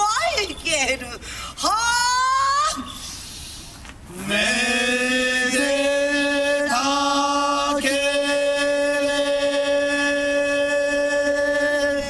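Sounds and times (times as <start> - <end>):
male voices chanting: 4.1 - 12.0.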